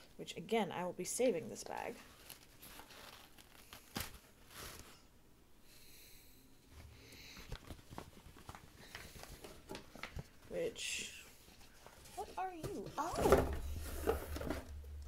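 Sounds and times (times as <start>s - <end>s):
fabric bag rustling and crinkling: 1.9s - 5.1s.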